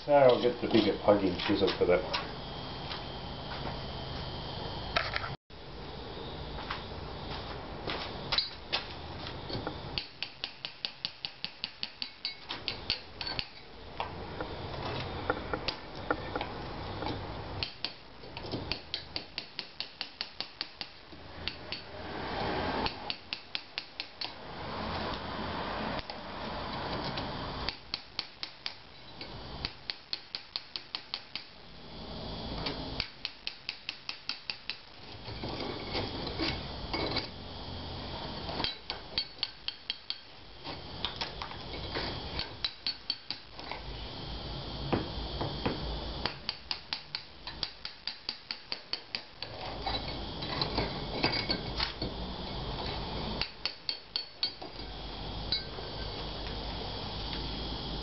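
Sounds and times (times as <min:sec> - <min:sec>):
hammer striking chisel: 0:10.0 - 0:13.6, 0:17.6 - 0:21.9, 0:22.8 - 0:24.4, 0:29.6 - 0:31.5, 0:33.0 - 0:34.9, 0:38.6 - 0:40.3, 0:42.4 - 0:43.5, 0:45.6 - 0:49.6, 0:53.4 - 0:54.6.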